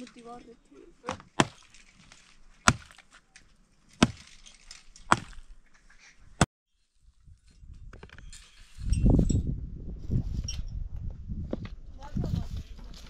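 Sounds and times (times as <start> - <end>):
pick striking stony soil: 1.0 - 5.6.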